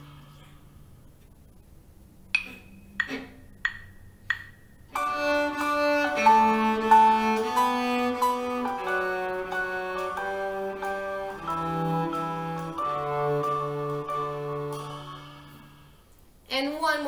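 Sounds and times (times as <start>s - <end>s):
count-in clicks: 2.4s - 4.7s
accompaniment track: 2.4s - 15.9s
bowed cello: 4.9s - 16.0s.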